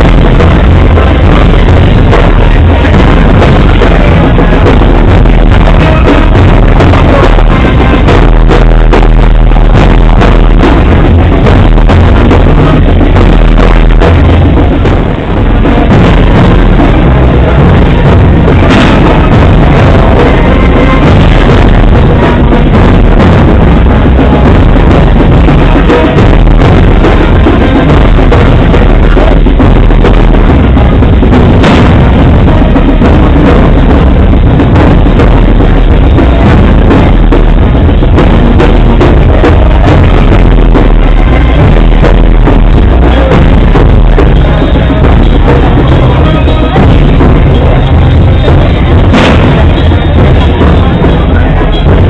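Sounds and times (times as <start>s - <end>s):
bass drum and snare drum beat: 0.0s - 52.0s
loud band music: 0.0s - 52.0s.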